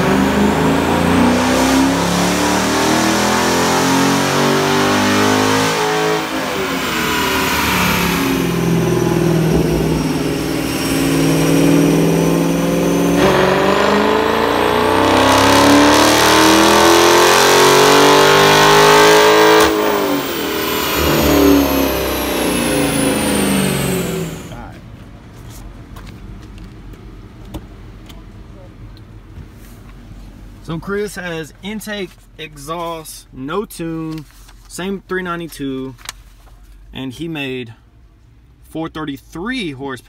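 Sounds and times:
engine revving at full throttle: 0:00.0 - 0:24.7.

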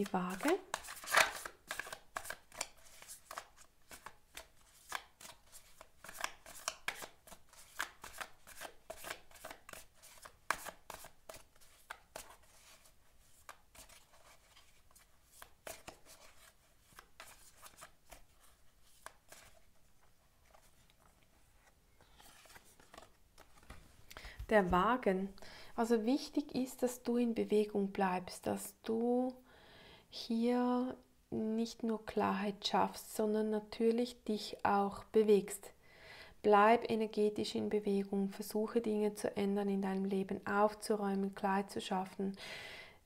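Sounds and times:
cards being shuffled: 0:00.0 - 0:23.9.

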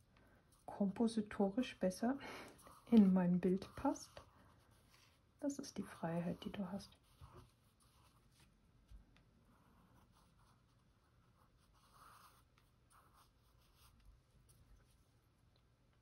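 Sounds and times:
pencil scratching on paper: 0:01.6 - 0:08.4, 0:09.4 - 0:15.0.

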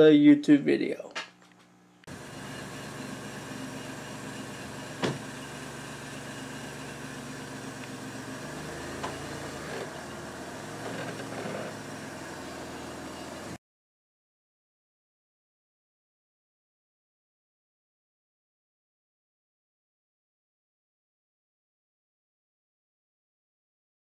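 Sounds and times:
engine idling hum: 0:02.1 - 0:13.6.

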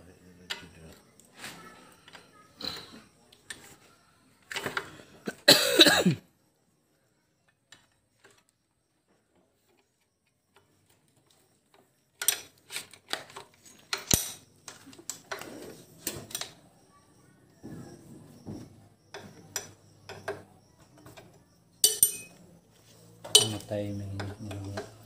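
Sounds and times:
person coughing: 0:05.3 - 0:06.2
metallic clicks of hand tools: 0:12.2 - 0:15.4.

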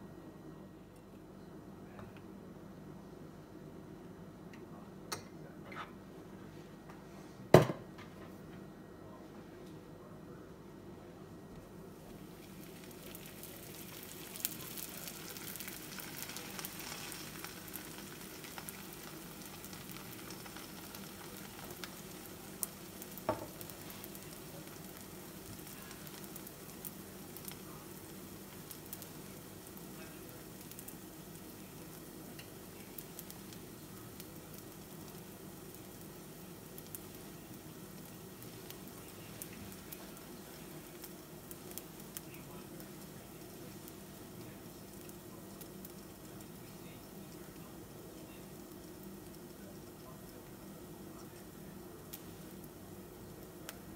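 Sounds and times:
dough sizzling in a frying pan: 0:11.9 - 0:53.9
small crackles: 0:12.0 - 0:53.9.

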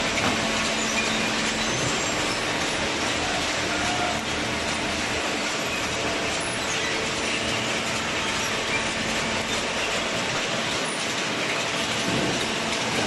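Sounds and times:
conveyor metallic rattle: 0:00.0 - 0:13.0.

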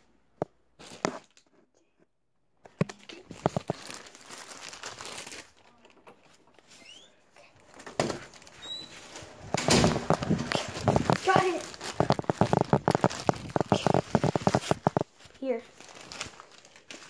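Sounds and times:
cloth rubbing over microphone: 0:08.4 - 0:15.5.

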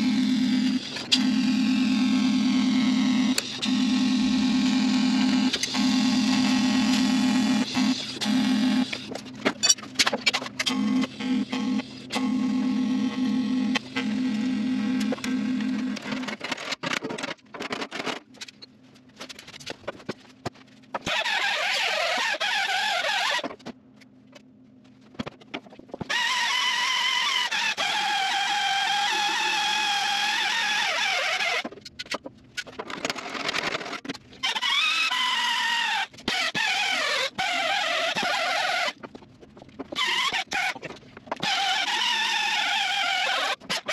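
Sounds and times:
die grinder whining: 0:00.0 - 0:16.5, 0:26.0 - 0:31.8, 0:39.9 - 0:43.9.

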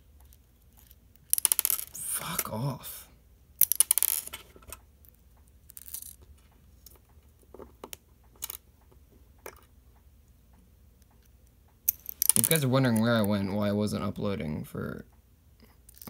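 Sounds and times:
small metal parts clinking: 0:00.3 - 0:02.6, 0:03.6 - 0:04.8, 0:05.7 - 0:06.2, 0:08.4 - 0:08.6, 0:11.9 - 0:13.1.

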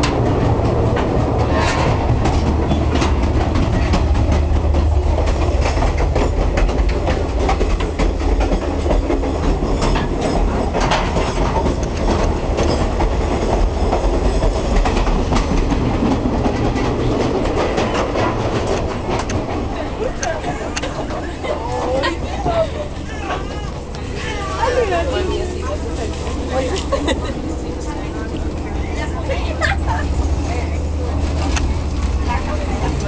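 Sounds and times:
train running gear rumble: 0:00.0 - 0:33.0.

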